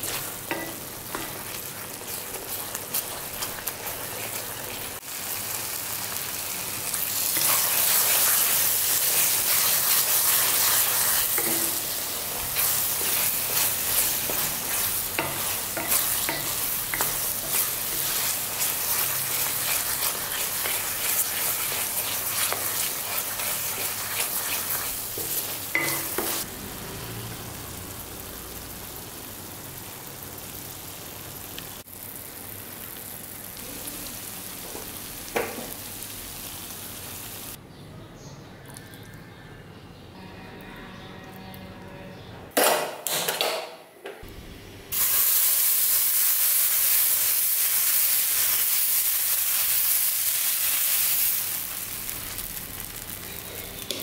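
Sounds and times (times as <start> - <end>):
food sizzling in oil: 0.0 - 37.6, 44.9 - 54.0
spatula scraping a pan: 7.4 - 26.4.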